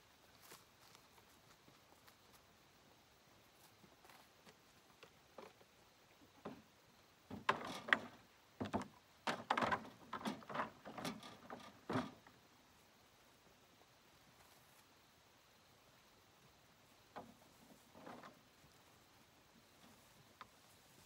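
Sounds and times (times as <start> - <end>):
irregular knocks and clattering: 6.3 - 12.4, 17.1 - 18.4.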